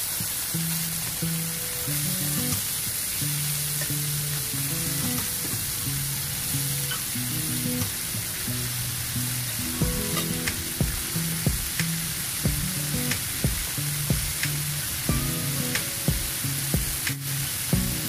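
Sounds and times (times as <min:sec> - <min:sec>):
chicken sizzling in oil: 0:00.0 - 0:18.0
background music with low thumps: 0:09.8 - 0:12.8, 0:13.4 - 0:15.4, 0:16.1 - 0:18.0.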